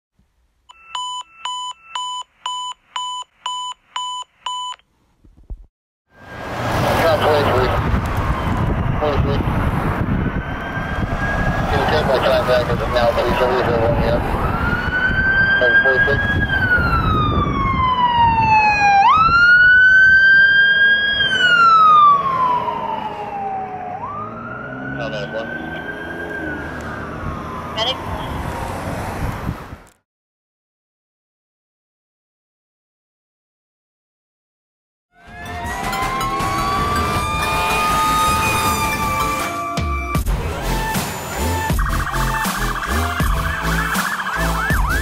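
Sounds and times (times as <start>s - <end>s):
electronic alarm beeping: 0.7s - 4.8s
fire engine siren wailing: 6.1s - 29.0s, 35.1s - 45.0s.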